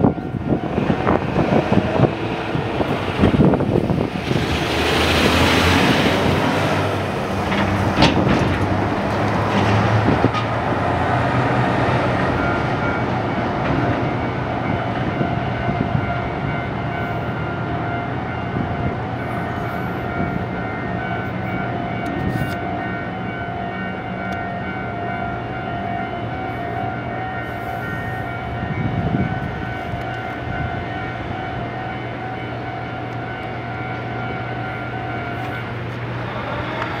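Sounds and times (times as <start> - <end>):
level crossing warning alarm: 0.0 - 7.1, 11.0 - 37.0
truck engine and tyres passing: 0.8 - 15.1.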